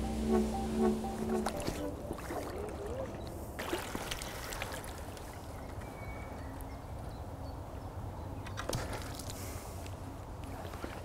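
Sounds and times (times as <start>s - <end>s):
low steady rumble: 0.0s - 2.2s
water lapping at shore: 1.4s - 5.8s.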